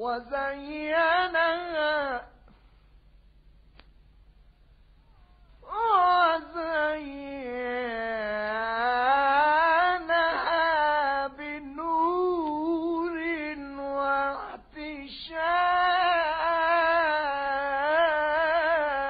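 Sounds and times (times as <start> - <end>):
solo voice chanting: 5.0 - 19.0.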